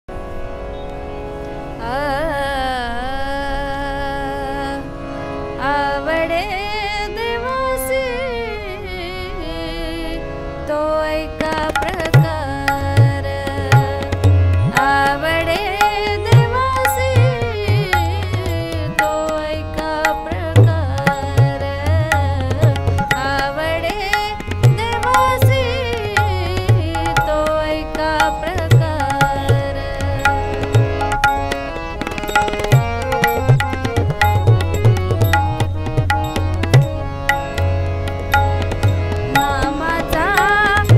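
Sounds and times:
harmonium: 0.0s - 40.9s
woman singing: 1.8s - 5.0s, 5.6s - 37.7s, 38.3s - 40.9s
tabla drum strokes: 24.3s - 27.6s, 28.2s - 40.9s.

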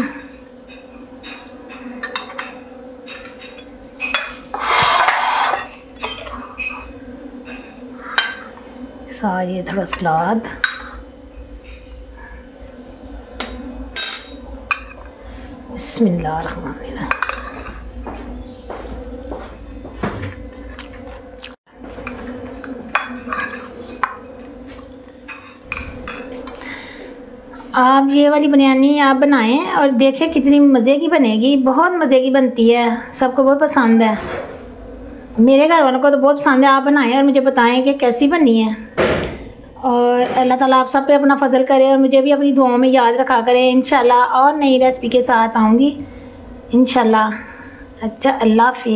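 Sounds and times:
steady low hum: 0.0s - 48.9s
metal spoon scraping ceramic plate: 3.2s - 6.9s, 23.0s - 24.1s.

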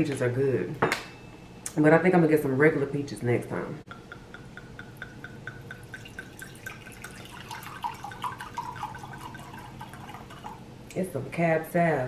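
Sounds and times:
wine glugging into glass: 5.1s - 10.6s.

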